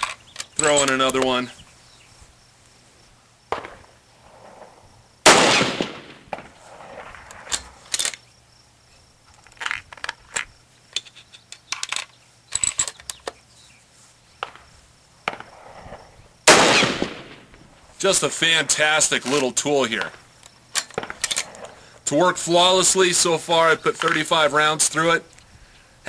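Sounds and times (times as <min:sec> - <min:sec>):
rifle shots with echo: 0:05.2 - 0:07.1, 0:16.5 - 0:17.6.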